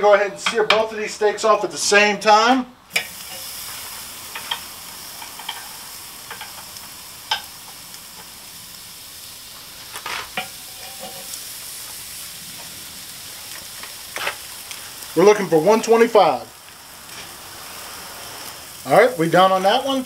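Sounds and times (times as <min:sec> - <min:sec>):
steaks sizzling on grill: 0:02.9 - 0:20.0
metal tongs clicking on grate: 0:04.3 - 0:06.7, 0:07.3 - 0:07.5.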